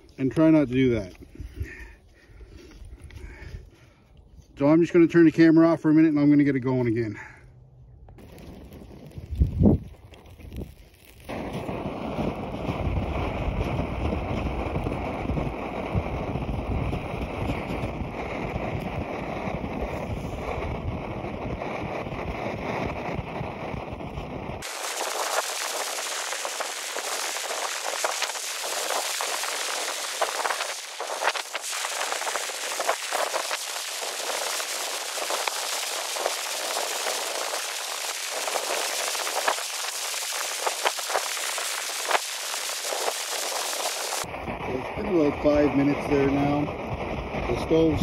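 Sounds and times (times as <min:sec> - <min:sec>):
wind buffeting the microphone: 0:00.8 - 0:04.6, 0:08.2 - 0:48.0
crackles and pops: 0:08.0 - 0:48.0
camp stove roaring: 0:08.1 - 0:46.0.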